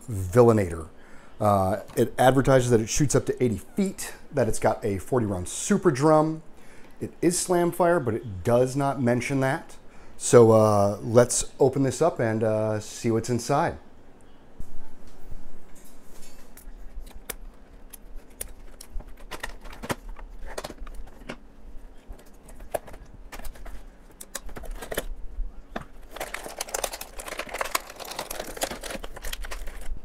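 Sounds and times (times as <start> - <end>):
plastic crinkling: 16.2 - 30.0.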